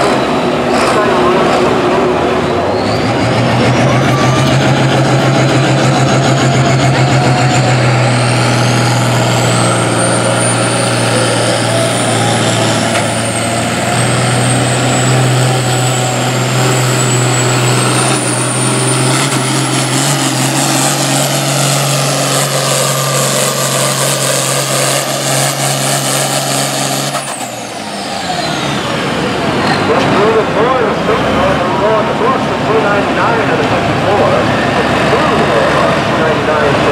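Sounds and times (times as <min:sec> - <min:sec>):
diesel tractor engine under load: 0:00.0 - 0:36.9.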